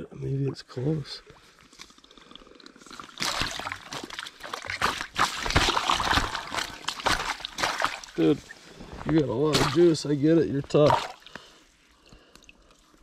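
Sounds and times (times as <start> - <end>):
fish thrashing and splashing water: 2.8 - 8.8, 9.4 - 10.0, 10.7 - 11.6.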